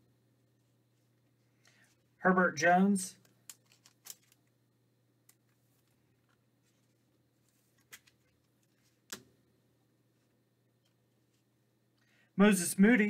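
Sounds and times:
cards clicking and tapping: 3.2 - 4.4.

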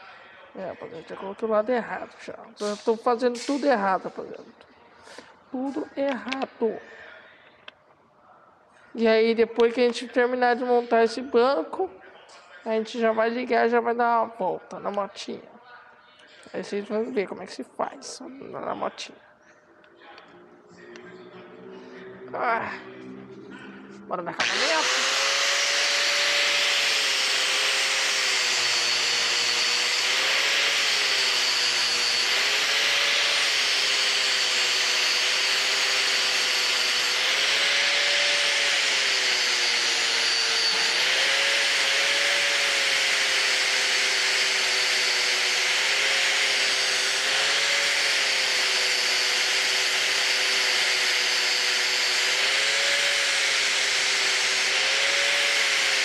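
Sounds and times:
angle grinder grinding metal: 2.6 - 4.0, 21.0 - 56.0.

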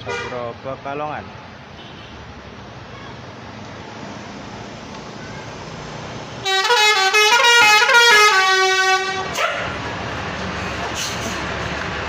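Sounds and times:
bus horn playing a tune: 0.0 - 0.4, 6.4 - 9.4.

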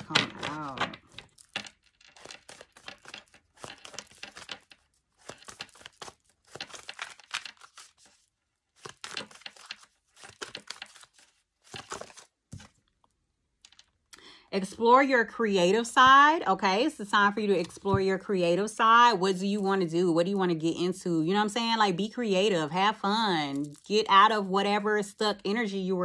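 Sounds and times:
cards being shuffled: 0.0 - 12.9.

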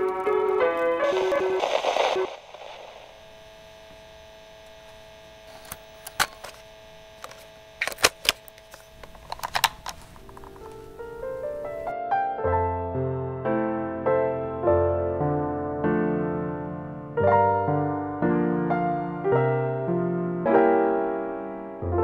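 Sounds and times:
piano notes: 0.0 - 1.6, 10.3 - 22.0
loud burst of static: 0.0 - 8.3
clicks and crackles: 0.0 - 11.8
electrical hum: 0.0 - 11.9.

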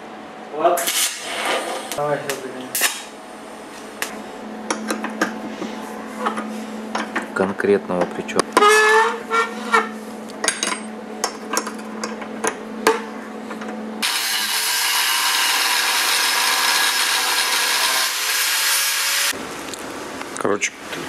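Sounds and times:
angle grinder grinding metal: 14.0 - 19.4.

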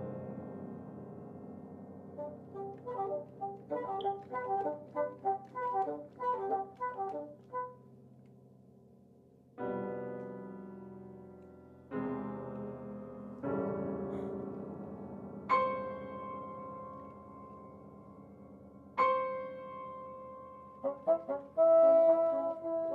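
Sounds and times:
piano repeated notes: 0.0 - 8.0, 9.6 - 22.9
loud piano chords ringing: 0.0 - 8.1, 9.6 - 22.9.

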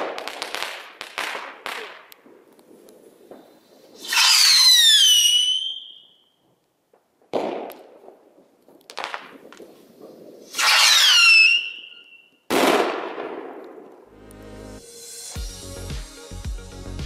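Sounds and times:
rocket whistle falling in pitch: 4.0 - 6.3, 10.5 - 12.4
crackling pop: 7.3 - 11.0
rocket bursting with sharp bang: 12.5 - 13.8.

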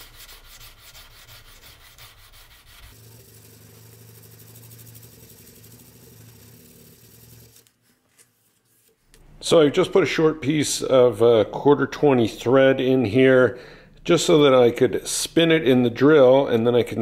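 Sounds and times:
sandpaper rubbing on steel blade: 0.0 - 8.9.

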